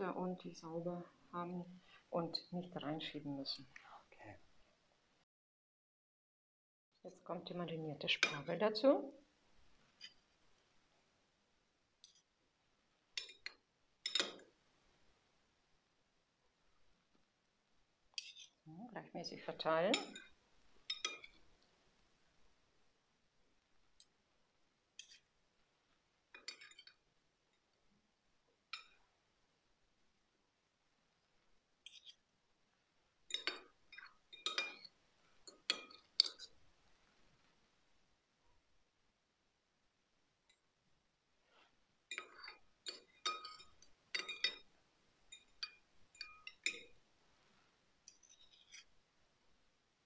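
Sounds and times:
cutlery clinking on glass and bowl: 13.2 - 14.4, 19.9 - 21.4, 26.4 - 27.0, 33.3 - 36.5, 42.1 - 44.7, 45.3 - 47.0
cutlery clinking against glassware: 14.0 - 14.4, 19.9 - 20.3, 33.3 - 34.9, 42.1 - 44.7.

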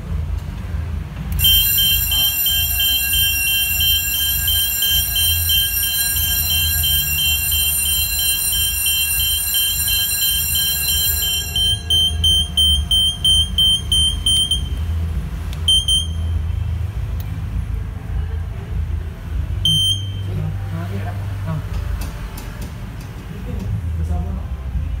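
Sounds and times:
fire alarm sounder beeping: 1.3 - 14.8, 15.7 - 16.4, 19.6 - 20.3.

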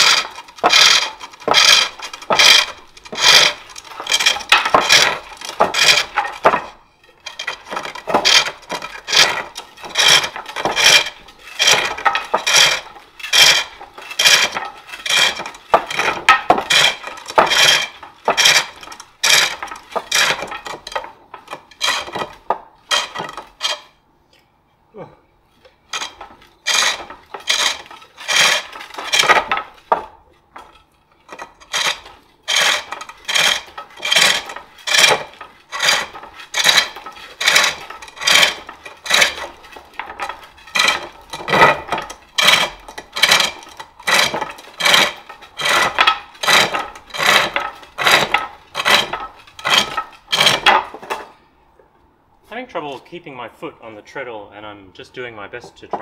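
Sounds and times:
lathe tool cutting wood: 0.0 - 6.6, 7.4 - 20.5, 26.0 - 29.6, 31.7 - 39.5.

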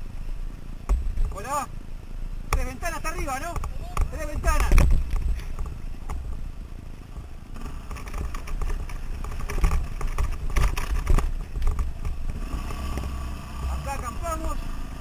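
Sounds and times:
dirt bike engine running: 2.5 - 15.0
clattering knocks over bumps: 3.4 - 6.5, 7.1 - 13.2.

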